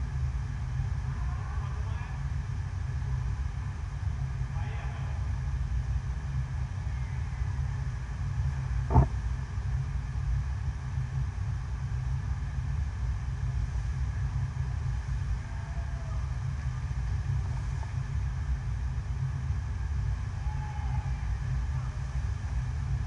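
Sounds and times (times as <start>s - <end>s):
water rushing with low rumble: 8.8s - 9.4s.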